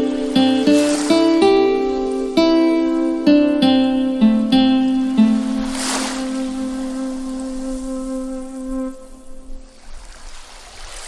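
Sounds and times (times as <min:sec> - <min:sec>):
slow plucked melody: 0:00.0 - 0:09.6.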